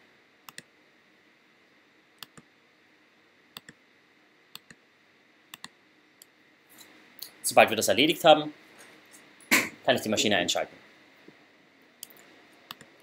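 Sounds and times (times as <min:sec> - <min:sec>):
computer mouse clicks: 0:00.5 - 0:00.7, 0:02.2 - 0:02.5, 0:03.6 - 0:03.8, 0:04.5 - 0:04.8, 0:05.5 - 0:06.3, 0:12.0 - 0:13.0.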